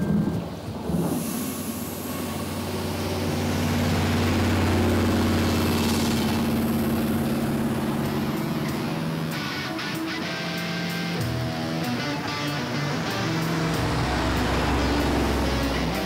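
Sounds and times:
vehicle engine humming: 0:00.0 - 0:16.0.

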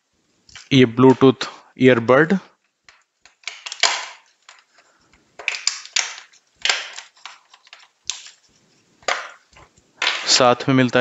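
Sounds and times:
plastic packaging crackling: 0:02.6 - 0:10.6.

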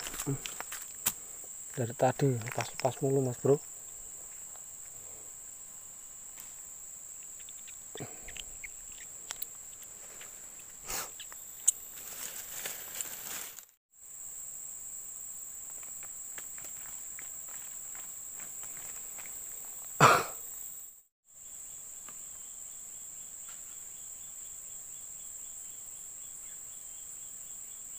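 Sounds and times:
high-pitched insect drone: 0:00.0 - 0:27.9
rustling: 0:11.8 - 0:13.8.

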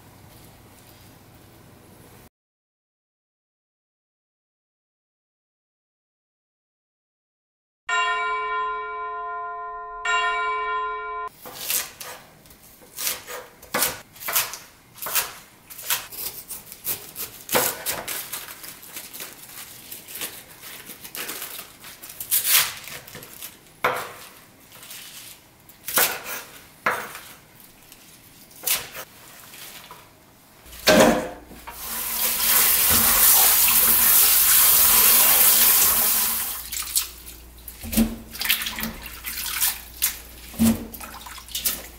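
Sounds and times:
chime ringing: 0:07.9 - 0:11.3.

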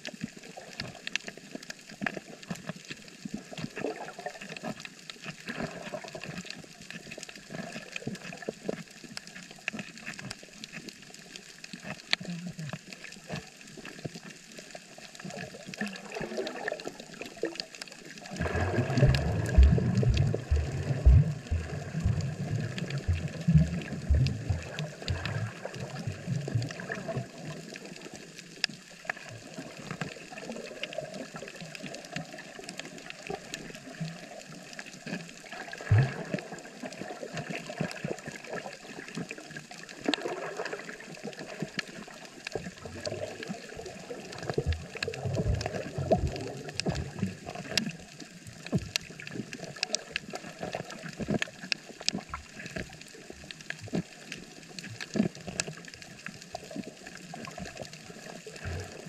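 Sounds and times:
crackle of small clicks: 0:00.0 - 0:59.0
muffled gurgling: 0:15.3 - 0:28.1, 0:40.1 - 0:51.5.

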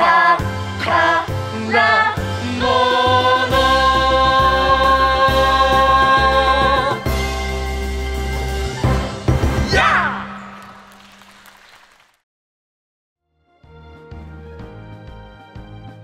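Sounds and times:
person singing: 0:00.0 - 0:07.1
backing music with bass: 0:00.0 - 0:09.7.

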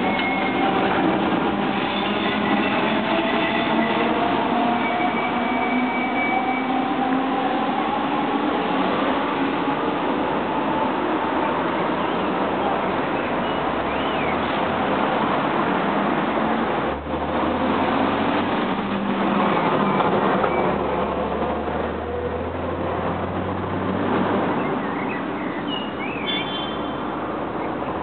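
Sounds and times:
city road traffic: 0:00.0 - 0:28.0
passing vehicle engine drone: 0:14.6 - 0:24.6.

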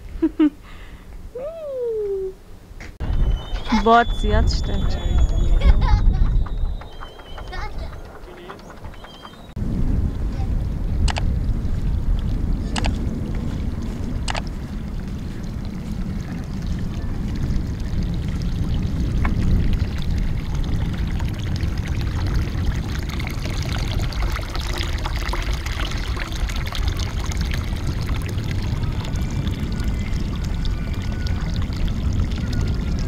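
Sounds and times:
wind rumble on microphone: 0:03.0 - 0:33.0
water splashing into trough: 0:14.3 - 0:33.0.

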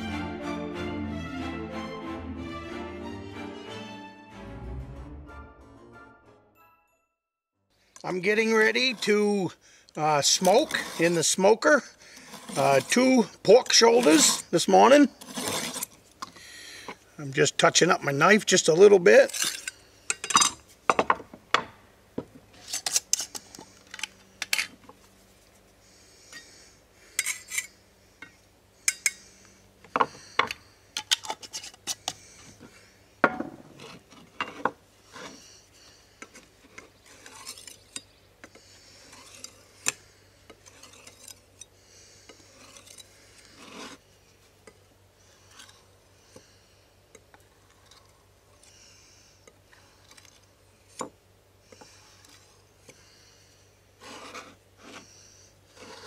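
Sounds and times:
knife scraping on whetstone: 0:08.6 - 0:09.4, 0:10.2 - 0:11.4, 0:12.2 - 0:14.6, 0:15.2 - 0:16.0, 0:22.6 - 0:23.6, 0:33.6 - 0:35.6, 0:36.2 - 0:44.1, 0:45.3 - 0:45.9, 0:54.0 - 0:56.0.

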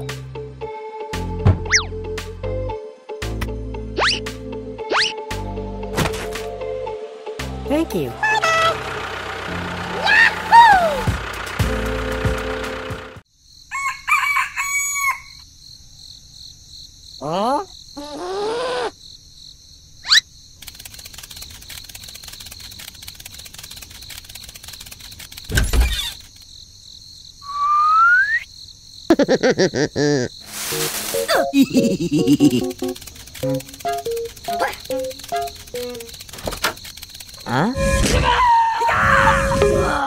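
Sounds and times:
cartoon thump: 0:01.4 - 0:01.9, 0:25.5 - 0:26.2, 0:37.8 - 0:38.4
rooster crowing: 0:13.7 - 0:15.4
high background trill: 0:30.8 - 0:36.4.

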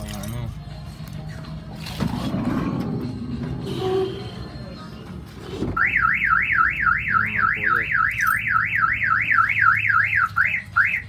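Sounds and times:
car alarm siren warbling: 0:05.8 - 0:11.0.

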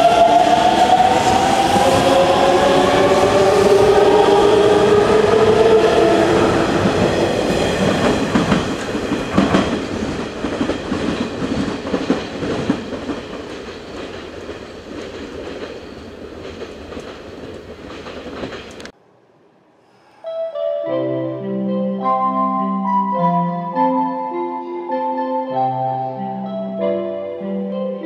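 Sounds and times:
train wheels clacking over rails: 0:00.0 - 0:18.9.

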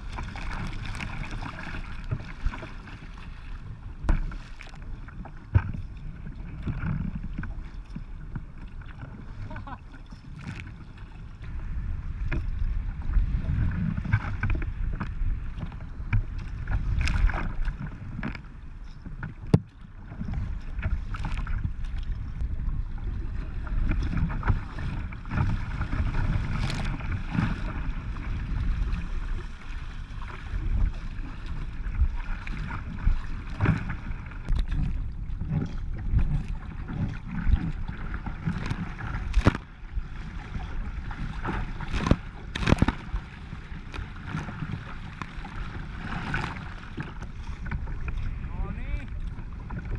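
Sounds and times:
splashes and drips: 0:00.0 - 0:03.3
water rushing along kayak hull: 0:00.0 - 0:49.9
wind rumbling on microphone: 0:00.0 - 0:49.9.

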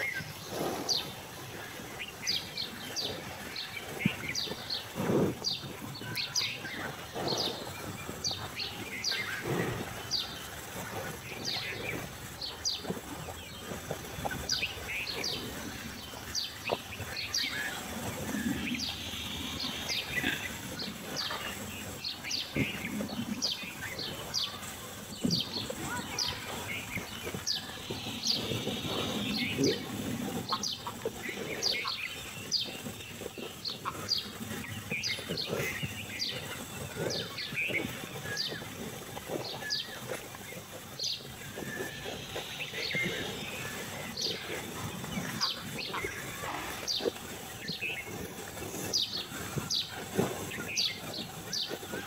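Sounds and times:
birds chirping: 0:00.0 - 0:52.0
cattle eating straw: 0:00.0 - 0:52.0.

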